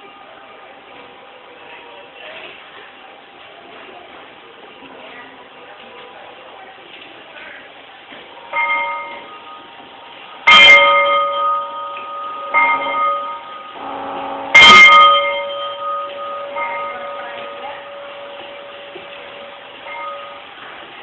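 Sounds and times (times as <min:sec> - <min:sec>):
model locomotive horn blasts: 0:13.6 - 0:16.2.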